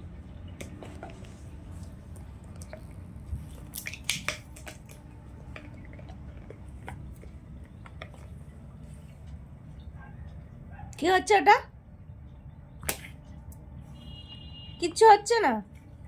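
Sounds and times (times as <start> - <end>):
dog chewing clicks: 3.7 - 8.4.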